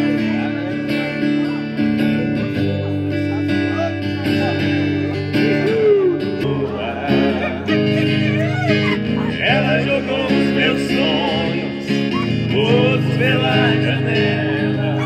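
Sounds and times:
acoustic guitar strumming chords: 0.0s - 15.0s
people's voices: 0.0s - 15.0s.

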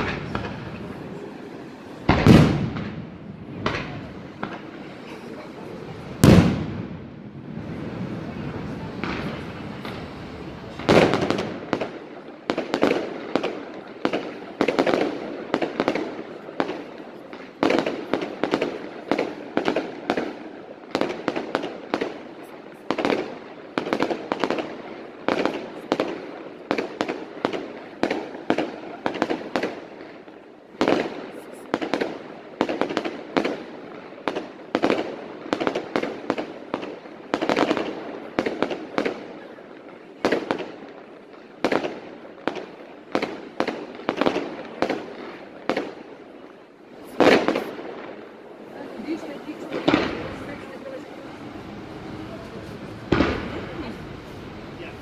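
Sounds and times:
fireworks bangs: 0.0s - 55.0s.

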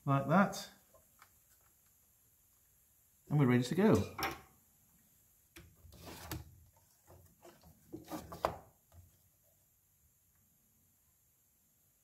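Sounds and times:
rubbing of parts: 5.7s - 8.6s.

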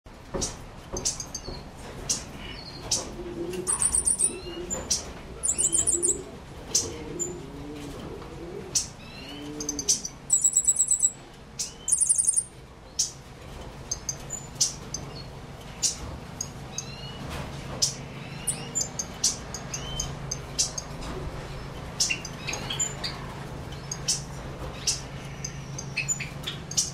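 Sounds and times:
birds chirping: 0.3s - 26.9s
low cooing: 3.0s - 10.2s
high buzzy bird trill: 5.4s - 6.3s, 8.8s - 12.5s.

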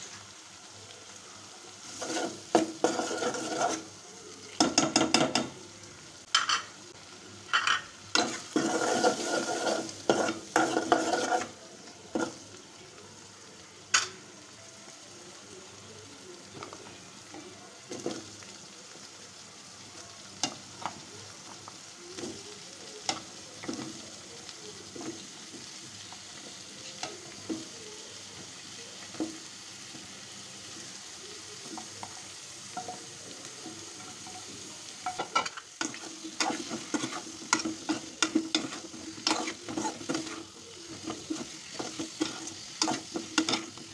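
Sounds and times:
curry sizzling: 0.0s - 43.9s.

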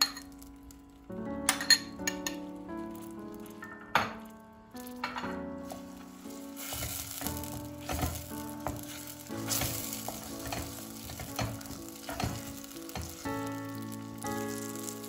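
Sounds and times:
paste sizzling in oil: 5.5s - 15.0s
wooden spoon scraping pot: 5.6s - 13.2s.

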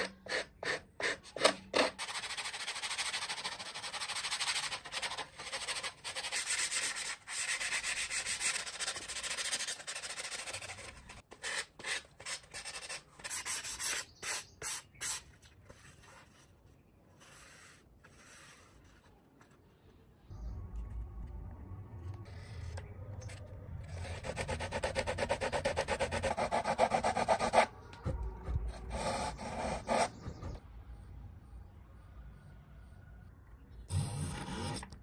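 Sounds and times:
sandpaper sanding foam: 2.0s - 15.3s.

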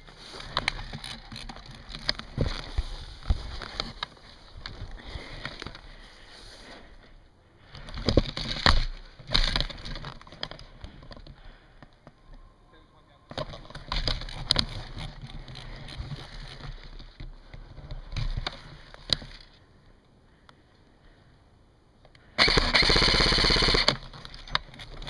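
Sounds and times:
airsoft gun full-auto burst: 22.4s - 24.0s.

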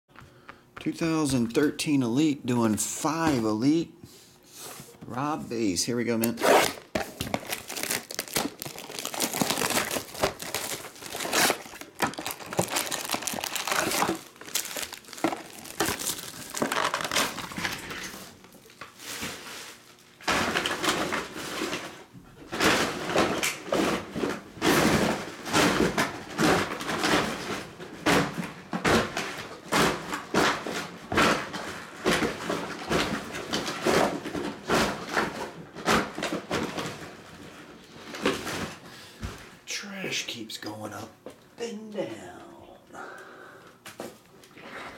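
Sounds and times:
plastic wrap crinkling and tearing: 6.2s - 21.9s.

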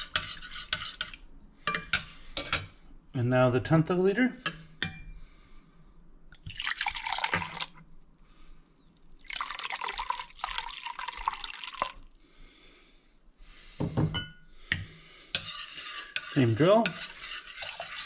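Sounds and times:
wine pouring into metal cup: 6.4s - 7.9s, 9.2s - 12.2s.

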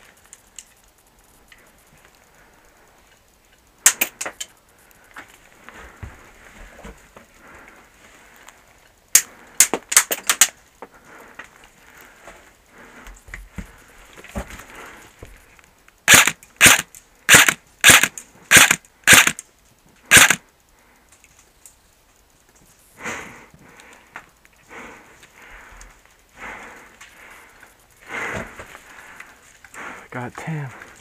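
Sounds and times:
airsoft rifle shots: 3.8s - 4.2s, 16.1s - 19.4s, 20.1s - 20.4s.

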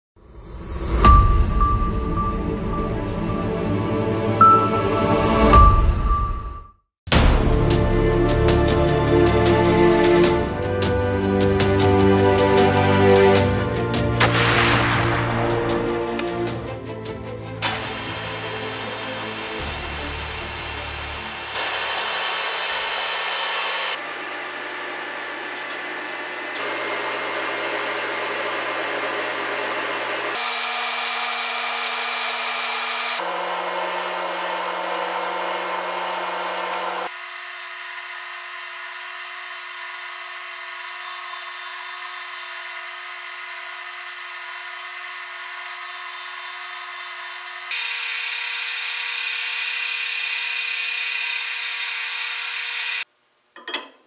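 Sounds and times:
lathe motor hum: 16.1s - 53.0s.

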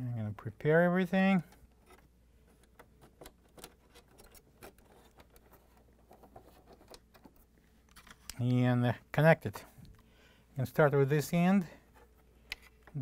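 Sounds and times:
wires rustling: 1.3s - 8.7s.

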